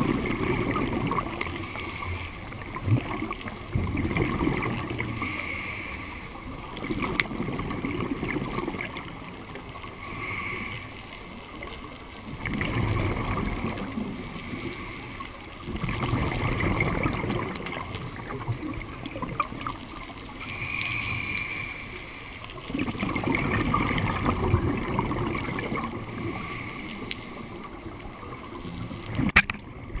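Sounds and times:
exhaled bubbles rushing: 0.0 - 1.6, 2.5 - 5.2, 6.6 - 9.6, 12.3 - 14.2, 15.6 - 20.5, 22.6 - 26.5, 27.6 - 30.0
regulator hissing inhale: 1.4 - 2.8, 5.0 - 6.6, 9.8 - 11.7, 14.0 - 15.7, 20.2 - 22.7, 25.9 - 28.1.

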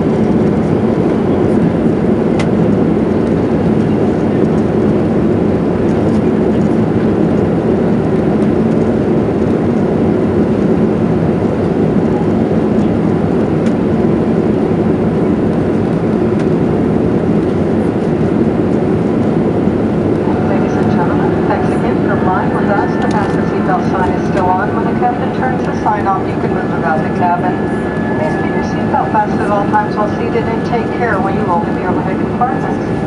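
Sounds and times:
jet engines roaring: 0.0 - 33.0
air rushing in cabin: 10.1 - 33.0.

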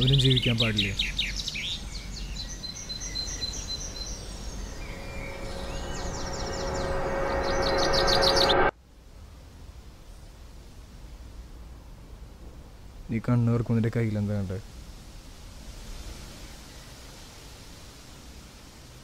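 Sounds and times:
birds chirping: 0.0 - 8.7
steady outdoor hiss: 0.0 - 19.0.

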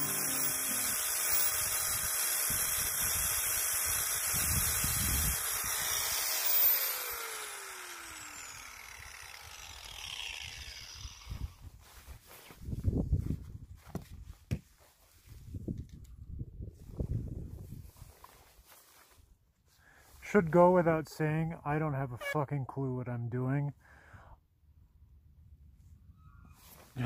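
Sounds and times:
angle grinder grinding fiberglass: 0.0 - 11.6
grinder disc spinning down: 0.0 - 11.6.

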